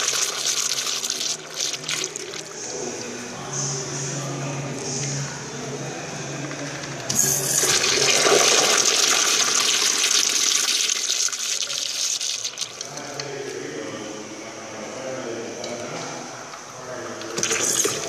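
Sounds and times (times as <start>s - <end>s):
urinal flushing: 0.0s - 3.4s, 6.9s - 13.4s, 16.8s - 18.0s.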